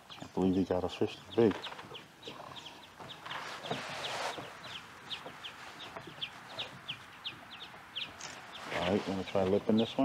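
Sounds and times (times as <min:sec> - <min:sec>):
rustling hiss: 0:02.4 - 0:07.2.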